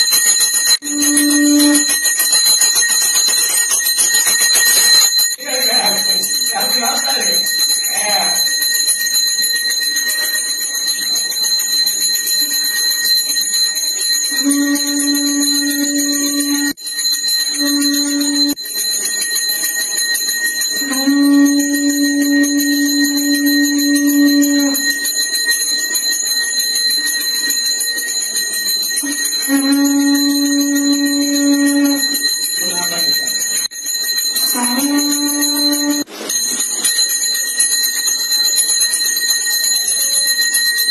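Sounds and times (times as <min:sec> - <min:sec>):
temple bell ringing: 0:00.0 - 0:40.9
long low note: 0:14.4 - 0:16.7, 0:20.8 - 0:24.8.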